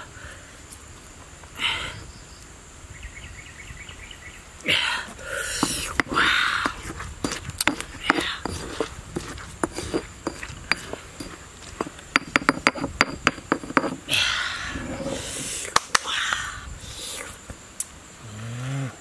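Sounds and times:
pestle pounding in stone mortar: 5.6s - 14.0s
hiss: 14.1s - 19.0s.

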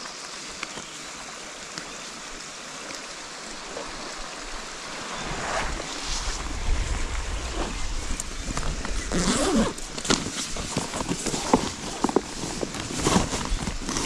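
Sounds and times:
running water in a stream: 0.0s - 14.0s
wind buffeting microphone: 4.5s - 10.7s.

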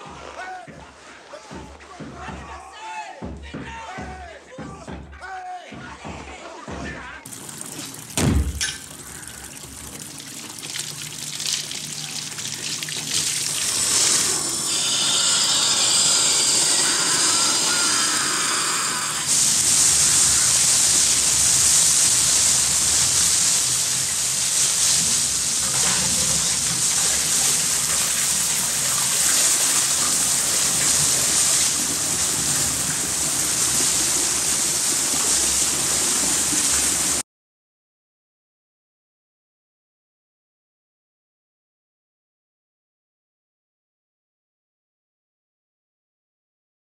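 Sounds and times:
water gushing from burst pipes: 7.3s - 37.2s
heavy thump: 8.2s - 8.6s.

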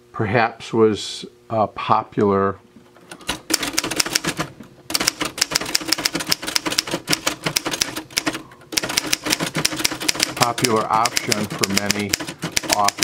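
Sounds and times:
typewriter typing fast: 3.3s - 13.0s.

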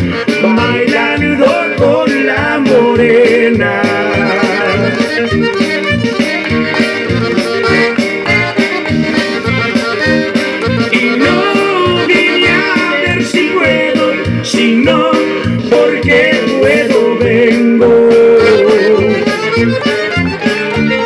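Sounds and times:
button accordion melody: 0.0s - 21.0s
drum beat and bass: 0.0s - 21.0s.

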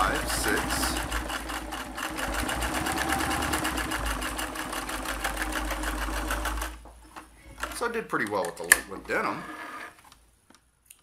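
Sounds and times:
sewing machine stitching: 0.0s - 6.8s.

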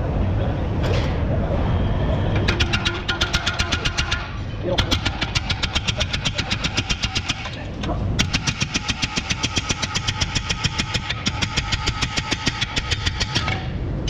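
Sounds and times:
rapid hammer blows on metal: 2.4s - 7.6s, 8.2s - 13.8s.

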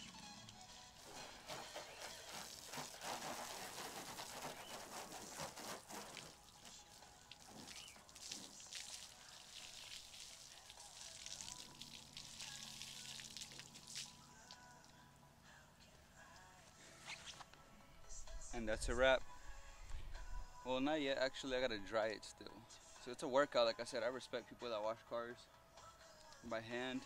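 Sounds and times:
water spraying onto car: 1.0s - 14.2s.

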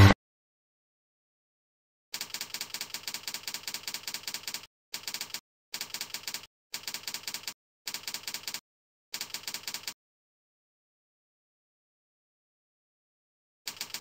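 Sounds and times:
rapid keyboard key clicks: 2.2s - 8.6s, 13.7s - 14.0s.

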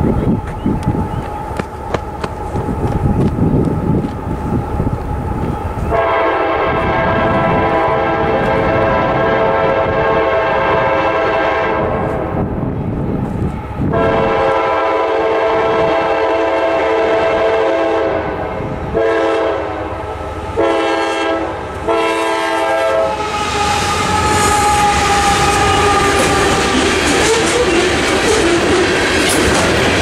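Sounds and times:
wheels clattering on rails: 0.0s - 5.9s, 24.4s - 30.0s
locomotive engine passing: 0.0s - 17.6s, 19.8s - 30.0s
locomotive horn blasts: 5.9s - 12.3s, 13.9s - 20.0s, 20.6s - 28.9s.

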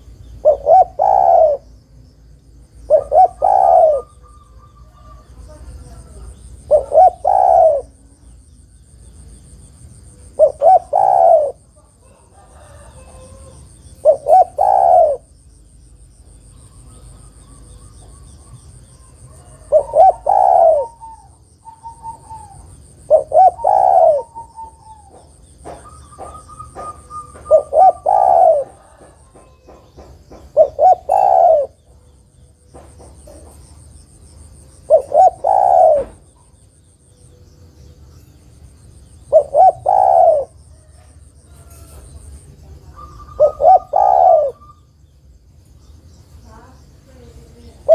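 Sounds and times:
dove cooing: 0.0s - 1.7s, 2.8s - 8.3s, 10.2s - 15.4s, 16.8s - 32.1s, 34.8s - 36.6s, 39.2s - 44.9s, 47.7s - 47.9s
faint bird chirps: 0.0s - 47.9s.

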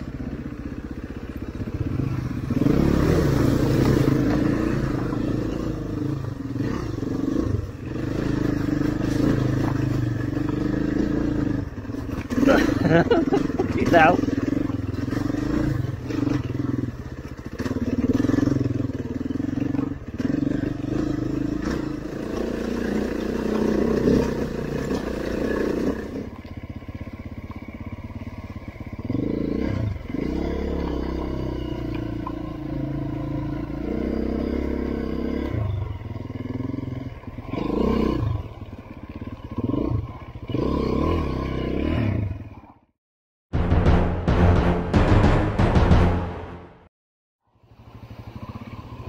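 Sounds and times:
motorcycle engine revving: 0.0s - 46.9s, 47.5s - 49.0s.

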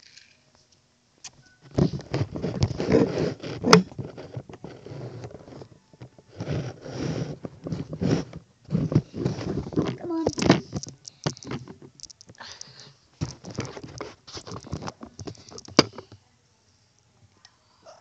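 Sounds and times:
fabric rustling: 1.7s - 10.8s.

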